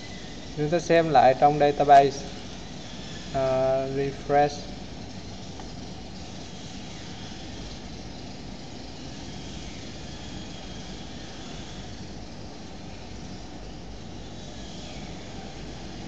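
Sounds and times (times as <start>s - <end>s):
even hiss: 0.0s - 4.9s.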